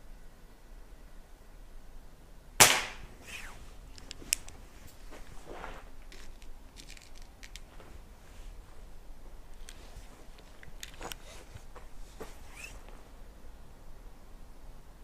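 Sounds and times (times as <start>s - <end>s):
air pistol shot: 2.6s - 3.5s.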